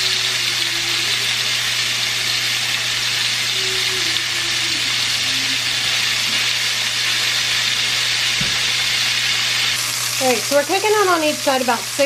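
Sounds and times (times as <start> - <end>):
chicken sizzling in hot oil: 0.0 - 12.0.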